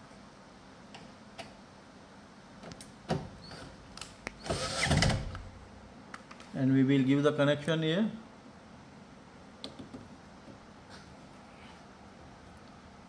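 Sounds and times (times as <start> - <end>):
cordless drill driving a screw: 4.4 - 5.2.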